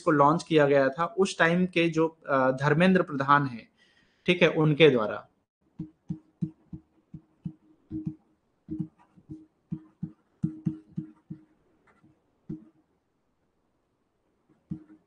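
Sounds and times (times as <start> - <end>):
stylus tapping on tablet: 5.6 - 12.8, 14.5 - 15.0.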